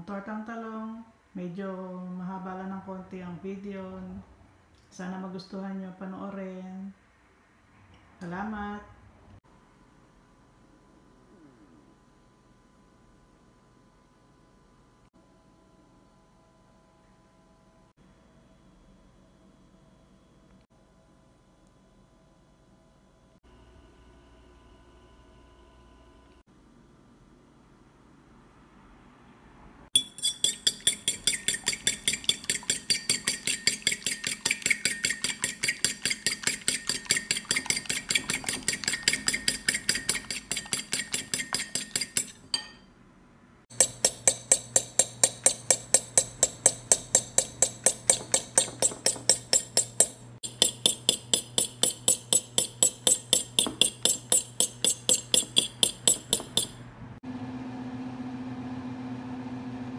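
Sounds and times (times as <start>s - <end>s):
fork clinking against bowl: 30.0s - 42.9s, 43.7s - 56.8s.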